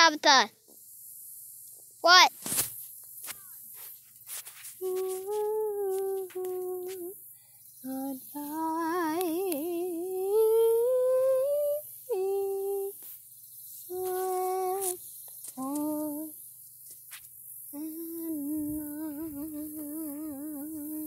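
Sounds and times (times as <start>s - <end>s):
person humming: 4.8s - 7.2s, 7.8s - 13.0s, 13.9s - 15.0s, 15.6s - 16.3s, 17.8s - 21.0s.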